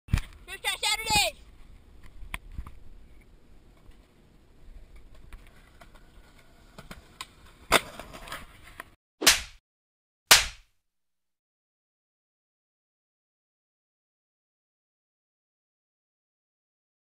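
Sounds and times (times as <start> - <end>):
skateboard wheels on concrete: 0.1 - 9.0
skateboard clack: 5.0 - 8.9.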